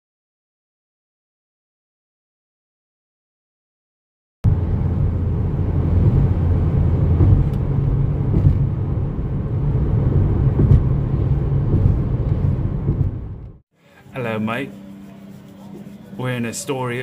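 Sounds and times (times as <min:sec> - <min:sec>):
road and engine rumble in car cabin: 0:04.4 - 0:13.7.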